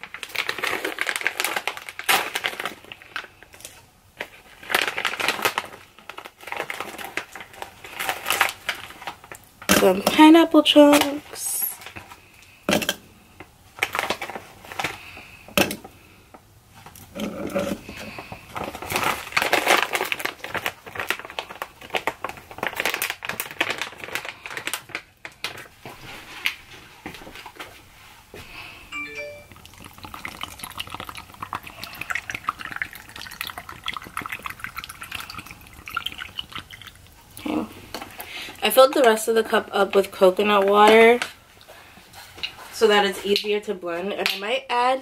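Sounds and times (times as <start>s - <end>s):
liquid pouring into cup: 29.0s - 37.4s.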